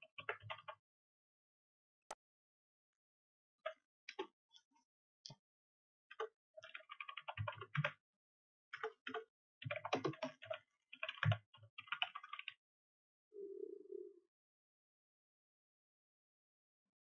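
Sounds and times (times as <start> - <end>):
computer keyboard typing: 0.2 - 0.8, 6.1 - 8.0, 8.8 - 12.6.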